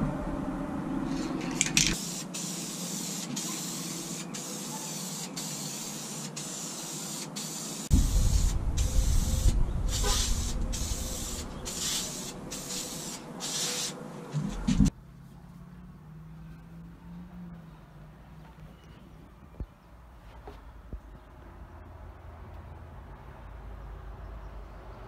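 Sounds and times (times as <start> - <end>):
low rumble: 0.0 - 1.8, 7.9 - 12.8
aerosol can spraying hiss: 1.1 - 14.0.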